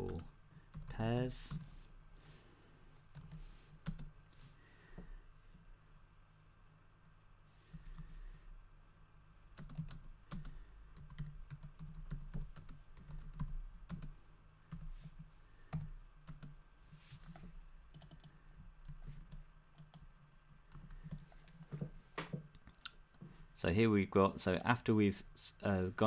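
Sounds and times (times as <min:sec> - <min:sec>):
keyboard typing: 0:03.1 - 0:04.1, 0:09.6 - 0:14.1, 0:14.7 - 0:16.6, 0:17.2 - 0:20.1.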